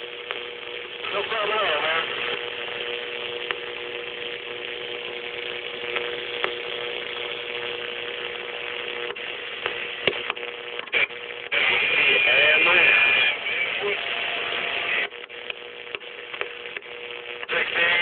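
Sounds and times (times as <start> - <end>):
radio static hiss: 0.0 - 18.0
radio knob clicks: 3.3 - 3.9, 5.7 - 7.4, 8.2 - 11.0, 15.2 - 16.9.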